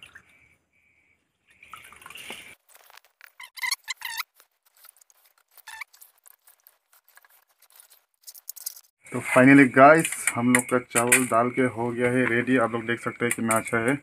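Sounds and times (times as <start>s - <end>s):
short squeaky scrapes: 3.2s - 8.0s.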